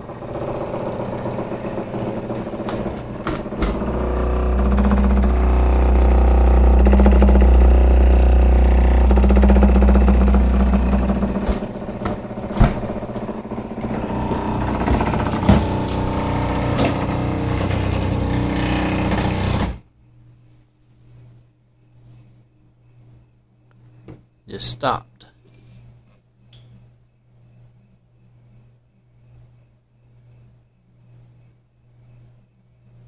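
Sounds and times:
refrigerator humming and droning: 0.0s - 33.0s
sharp clicks and knocks: 0.6s - 19.8s.

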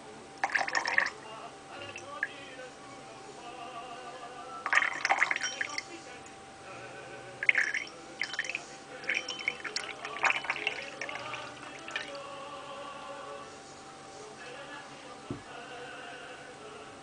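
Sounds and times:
water trickling into glass: 0.4s - 1.2s, 4.7s - 5.9s, 7.4s - 12.2s.

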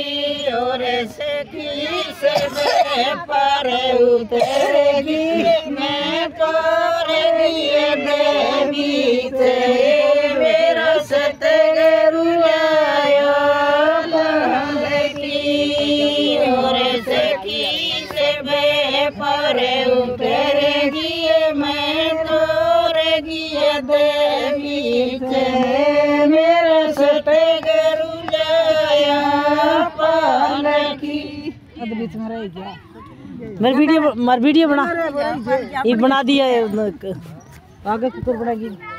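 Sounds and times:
women singing in chorus: 0.0s - 32.0s.

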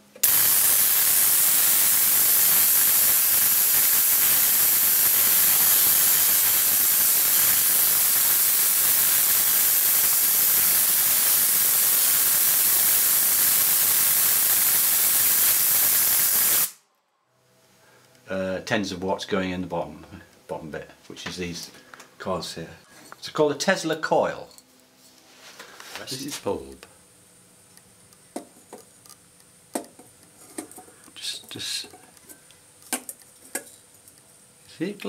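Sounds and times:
tesla coil discharge hissing: 0.2s - 16.8s.

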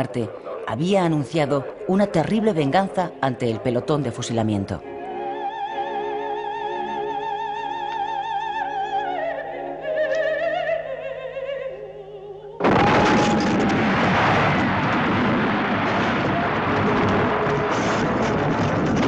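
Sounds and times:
woman singing opera: 5.1s - 12.9s
loud bomb explosion: 12.6s - 19.0s.

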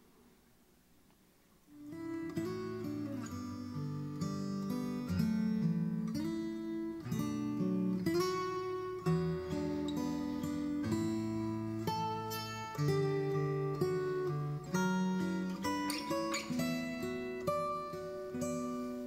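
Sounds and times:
acoustic guitar music: 1.6s - 19.0s.

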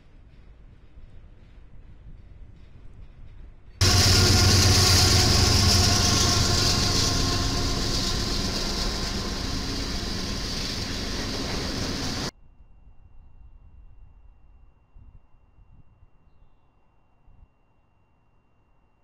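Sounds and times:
diesel locomotive engine drone: 3.8s - 12.3s
wheel and rail noise: 3.8s - 12.3s.

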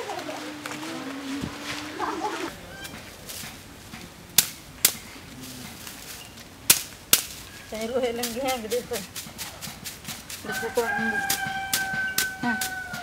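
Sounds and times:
sharp cracks: 2.9s - 7.5s.

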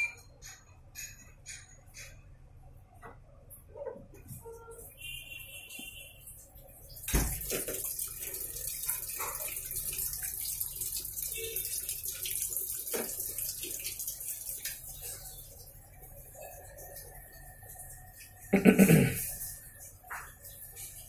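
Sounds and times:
water pouring into washing machine: 6.3s - 21.0s.

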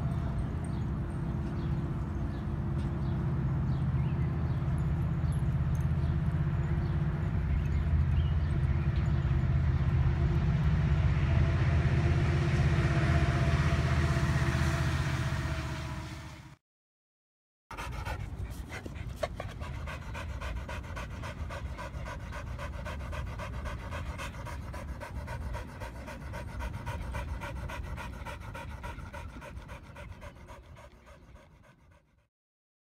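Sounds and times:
dog panting: 17.7s - 32.3s.

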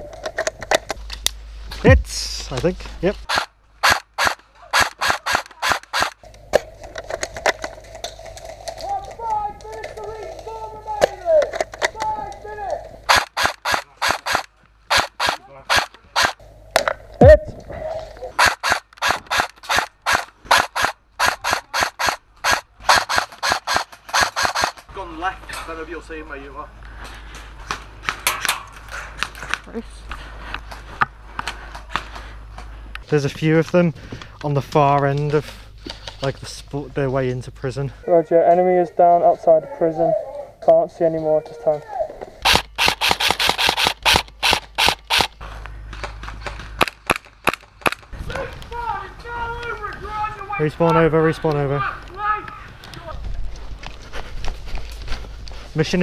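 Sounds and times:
airsoft rifle firing single shots: 3.3s - 6.1s, 13.1s - 16.4s, 18.4s - 24.8s, 42.4s - 45.3s.

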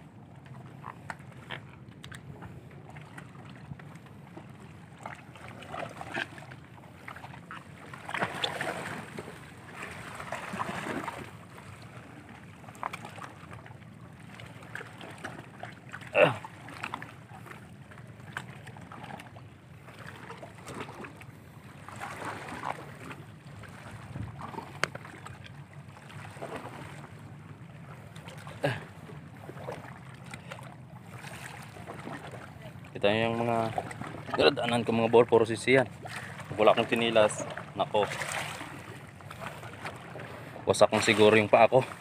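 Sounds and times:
wind: 0.0s - 42.0s
surf on rocks: 31.0s - 42.0s.

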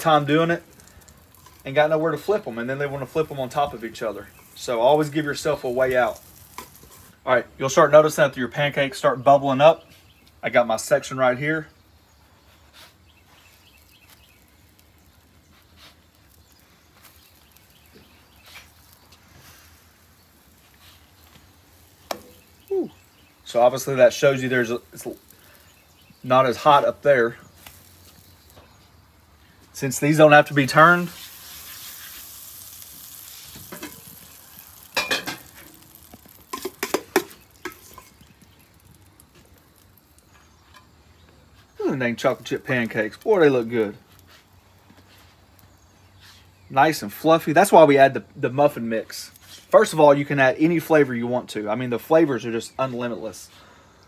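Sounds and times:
spatula scraping on griddle: 0.0s - 7.2s, 12.2s - 46.6s, 49.4s - 49.8s
pancakes sizzling: 0.0s - 54.0s.

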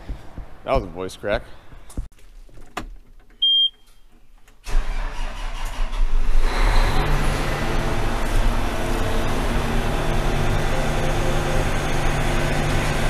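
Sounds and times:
high warning beep: 3.4s - 3.9s
diesel engine starting and running: 4.6s - 13.0s.

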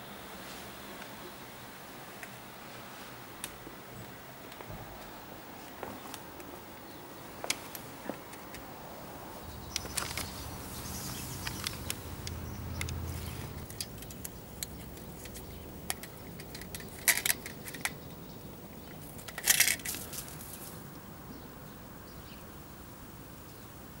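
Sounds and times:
metal mouse trap clicking and rattling: 13.6s - 18.0s, 19.0s - 20.0s.

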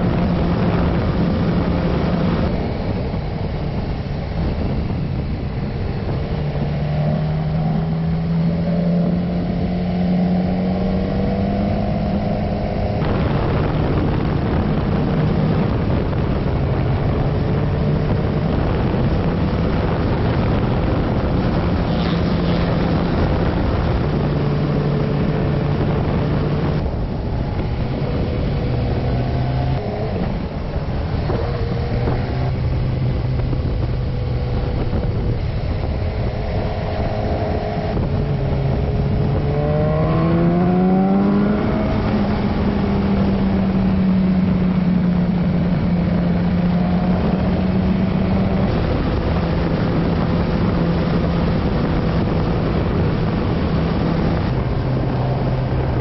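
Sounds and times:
motorcycle engine accelerating: 0.0s - 56.0s
steady rush of noise: 0.0s - 56.0s.

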